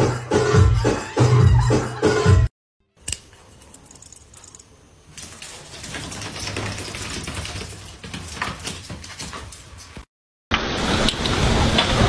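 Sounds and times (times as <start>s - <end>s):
rapid rattle of clicks: 3.8s - 10.1s.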